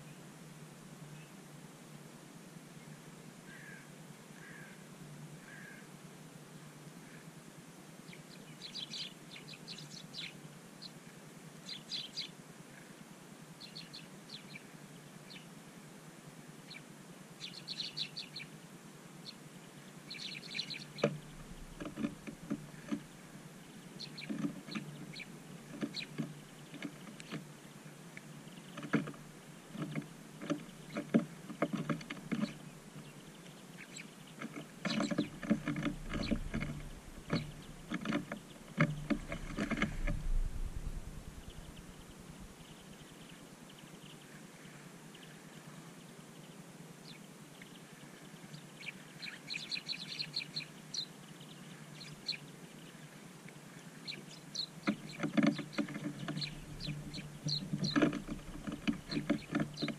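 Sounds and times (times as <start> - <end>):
small birds chirping: 8.0 - 13.0, 13.6 - 15.6, 16.6 - 18.6, 19.2 - 59.9
birds pecking seed: 19.7 - 45.8, 47.5 - 59.9
wings fluttering: 20.6 - 27.5, 34.4 - 43.2, 54.8 - 59.9.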